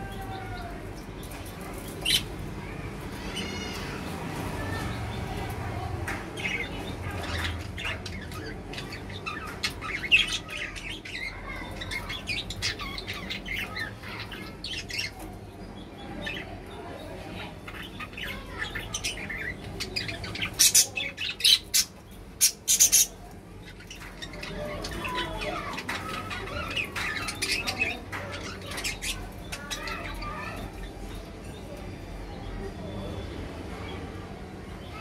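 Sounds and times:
budgerigars chirping: 17.4 - 30.6
loud sharp bird calls: 17.4 - 31.0.

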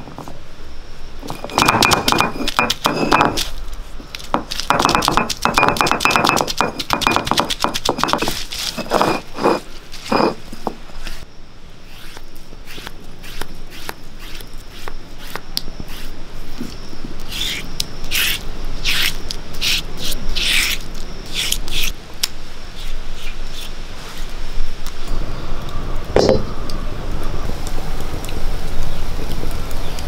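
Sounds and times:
stone roller grinding on stone slab: 1.3 - 3.5, 4.4 - 11.2.

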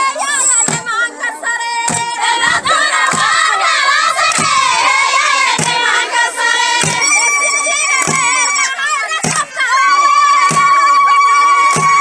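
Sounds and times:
women singing together: 0.0 - 12.0
sharp clapping: 4.2 - 4.6, 5.6 - 5.8, 6.8 - 7.0, 8.0 - 8.3, 11.6 - 12.0.

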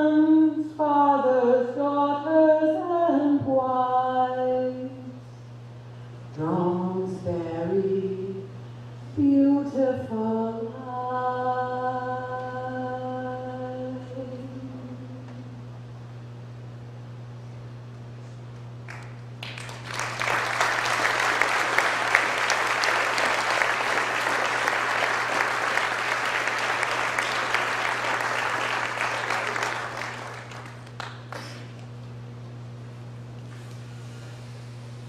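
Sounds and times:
audience applauding: 18.9 - 31.9.

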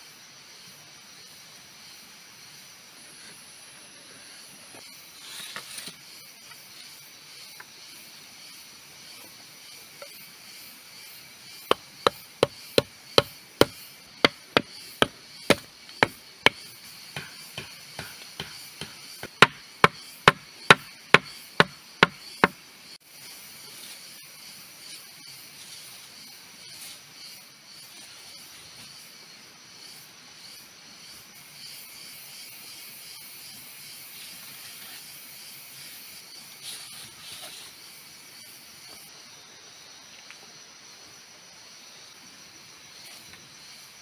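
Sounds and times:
steady background hiss: 0.0 - 44.0
chopping strikes on wood: 11.7 - 22.6.

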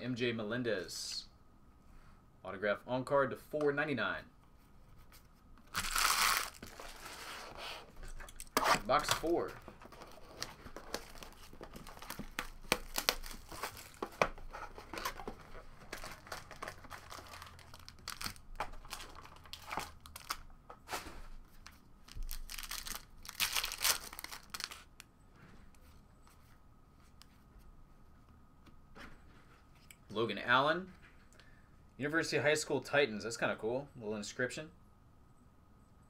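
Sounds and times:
wrapping ripping: 5.7 - 7.4, 10.0 - 14.0, 15.5 - 20.4, 22.0 - 24.9
plastic wrapping crinkling: 5.7 - 20.5, 21.5 - 25.0.

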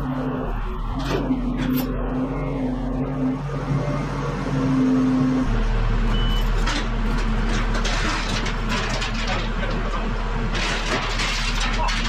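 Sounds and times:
diesel engine running: 0.0 - 12.0
short beep: 6.1 - 6.5.

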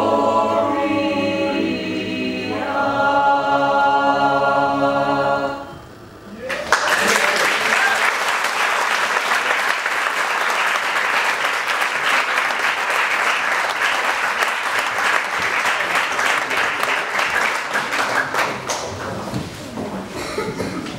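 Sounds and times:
audience applauding: 6.4 - 19.2.

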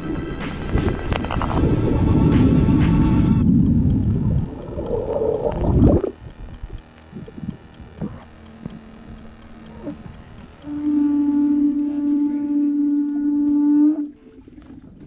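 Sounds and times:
underwater gurgling and rushing: 0.5 - 6.2
faint ticking: 0.7 - 12.2.

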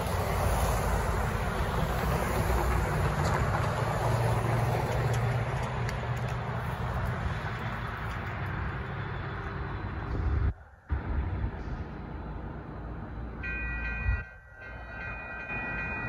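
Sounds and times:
cars driving past: 0.0 - 16.0.

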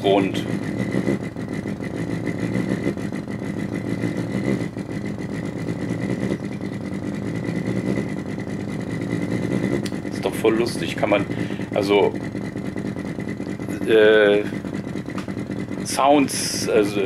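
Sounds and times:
fast-pulsing low buzz: 0.0 - 17.0.

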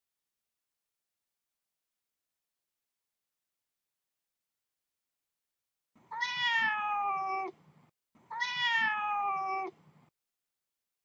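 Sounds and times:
cat meowing: 6.1 - 7.6, 8.3 - 9.8.

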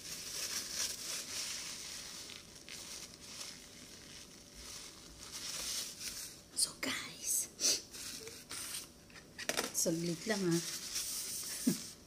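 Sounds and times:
paper napkin crinkling: 0.0 - 6.4, 9.8 - 12.0.

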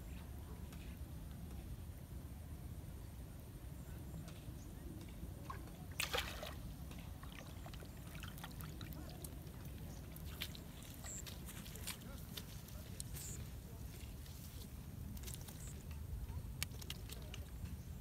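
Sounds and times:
fish splashing out of water: 5.9 - 6.6.

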